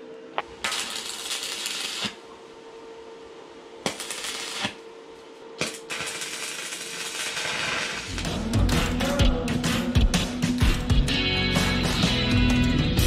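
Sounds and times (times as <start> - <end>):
electric arc welding: 0.4 - 2.2, 3.8 - 4.8, 5.6 - 9.9.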